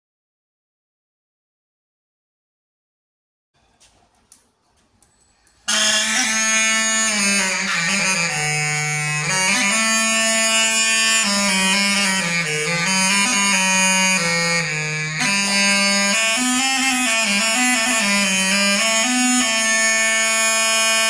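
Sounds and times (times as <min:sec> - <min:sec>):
faint clicks: 0:03.8 - 0:05.6
buzzy reedy bagpipe tune: 0:05.6 - 0:21.0.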